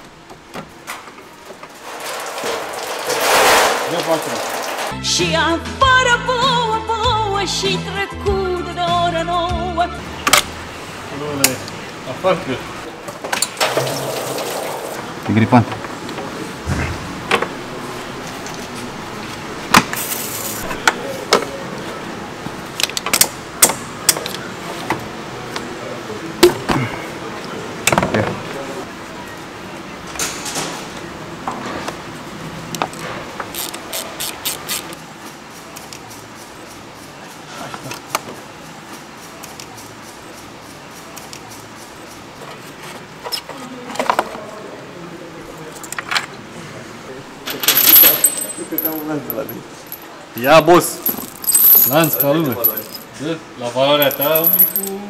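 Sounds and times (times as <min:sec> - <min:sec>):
knocks and clatter of parts: 0:00.4 - 0:05.0, 0:47.5 - 0:53.1, 0:54.0 - 0:55.0
hand tools clicking and knocking: 0:54.0 - 0:55.0.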